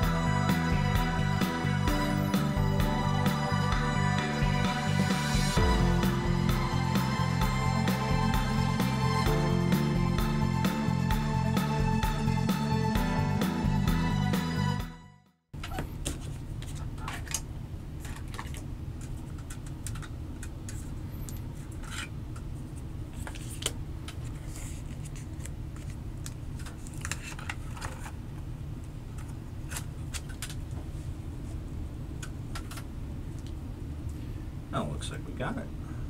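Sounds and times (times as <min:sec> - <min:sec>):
low hum: 0:00.0 - 0:14.2.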